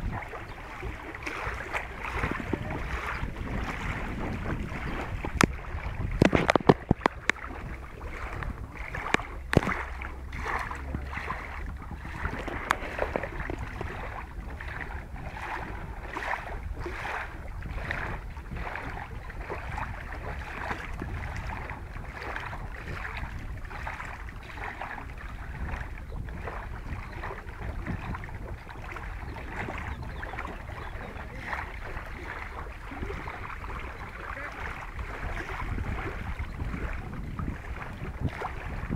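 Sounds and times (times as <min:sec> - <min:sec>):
waves lapping against concrete: 0:00.0 - 0:38.9
wind rumbling on microphone: 0:00.0 - 0:38.9.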